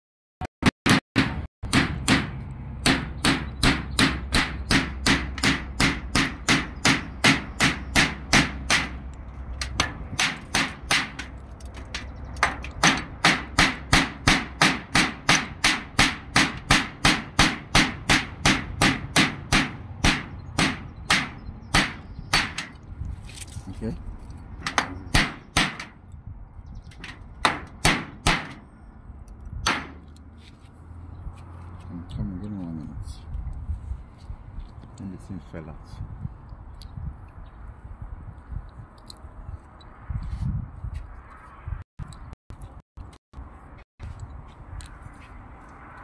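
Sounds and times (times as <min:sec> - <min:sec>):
rapid hammer blows: 0:12.4 - 0:22.7, 0:27.4 - 0:28.6.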